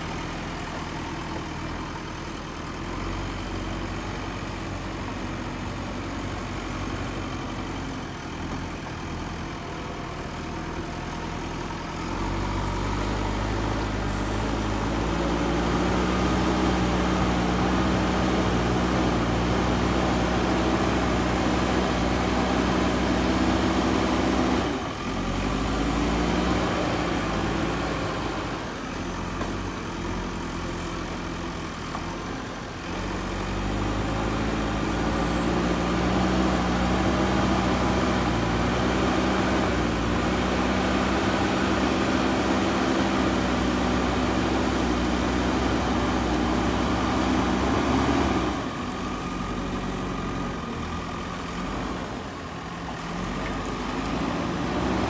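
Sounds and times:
diesel engine working under load: 0.0s - 55.0s.

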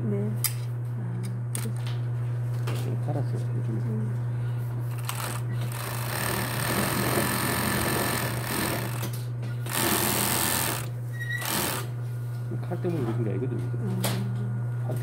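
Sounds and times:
steady motor hum: 0.0s - 15.0s
overlock machine stitching fabric: 4.9s - 11.9s.

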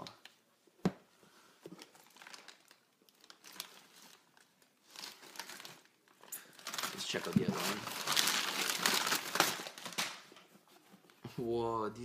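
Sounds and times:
packaging crinkling: 1.7s - 10.4s.

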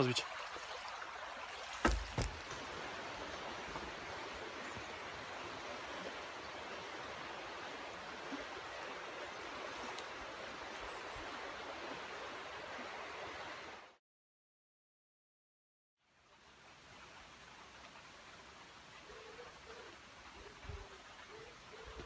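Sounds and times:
fast-running stream rushing: 0.0s - 14.0s.

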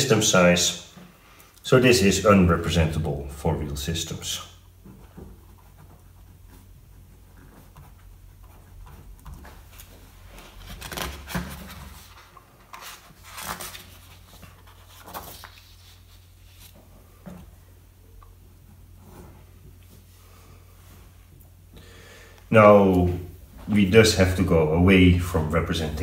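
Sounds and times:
paper sheets rustling: 8.9s - 17.2s.

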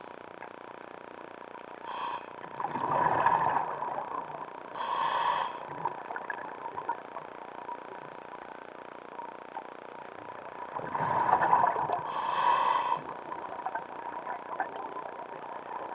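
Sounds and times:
faint steady hiss: 0.0s - 15.9s
regulator hissing inhale: 1.8s - 2.5s, 4.7s - 5.9s, 12.0s - 13.2s
exhaled bubbles: 2.4s - 4.5s, 10.4s - 12.1s.

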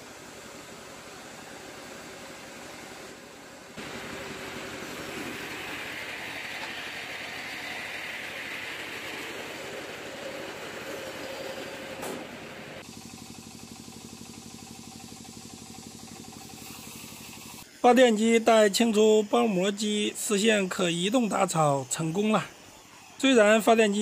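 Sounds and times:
diesel generator running: 0.0s - 17.7s
baler-wrapper machine running: 0.4s - 17.7s.

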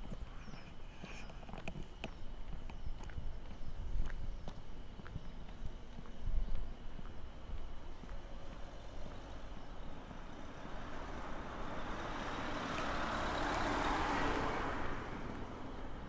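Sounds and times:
vehicle passing on street: 6.7s - 16.0s.

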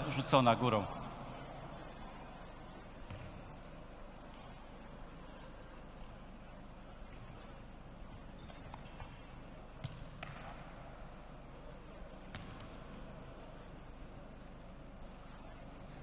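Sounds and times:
low hall hum: 0.0s - 16.0s
football thuds: 3.1s - 3.4s.

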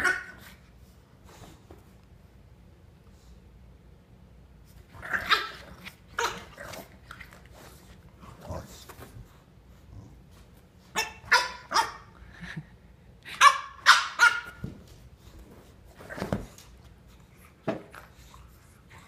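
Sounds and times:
puppy barking: 11.0s - 12.2s, 13.3s - 14.6s.

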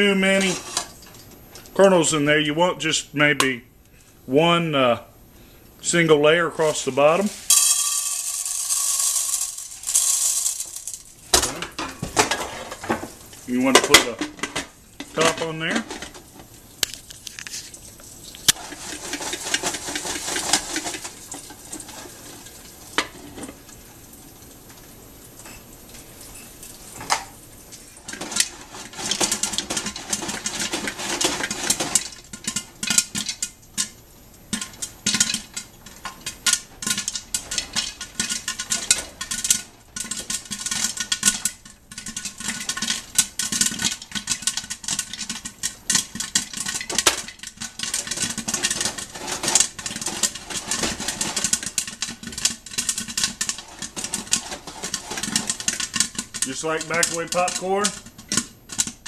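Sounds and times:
popcorn popping in pot: 6.6s - 17.3s, 18.0s - 23.9s, 28.0s - 59.0s.

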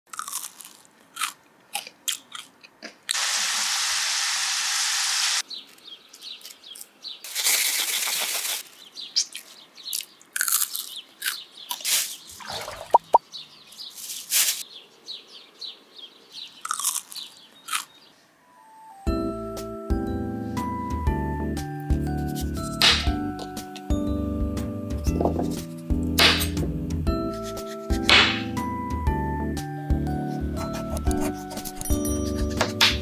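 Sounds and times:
fries crunching: 0.1s - 2.5s, 9.2s - 12.3s, 16.6s - 18.0s
plastic bag crinkling: 7.2s - 11.0s
bag shaking: 7.3s - 8.6s.

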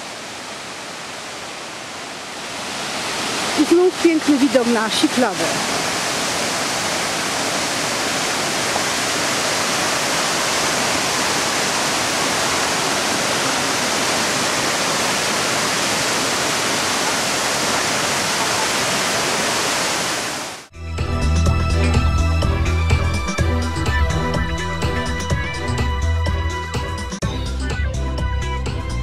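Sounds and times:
waterfall rushing: 0.0s - 20.7s.

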